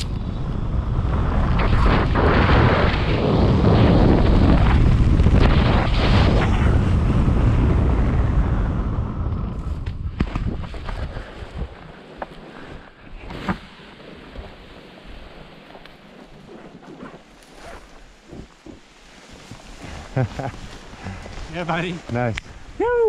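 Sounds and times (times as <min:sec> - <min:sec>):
wind buffeting microphone: 0:00.0 - 0:13.2.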